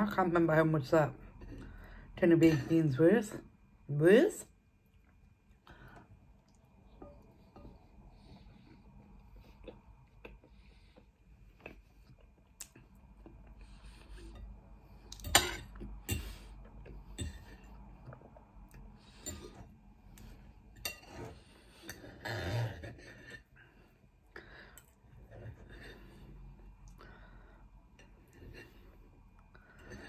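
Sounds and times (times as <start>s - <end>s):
cutlery clinking on a plate: 15.1s - 16.4s.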